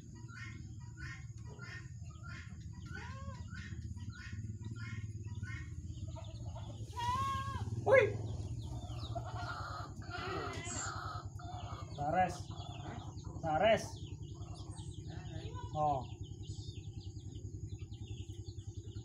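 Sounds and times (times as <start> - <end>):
young birds cheeping: 0.0 - 19.0.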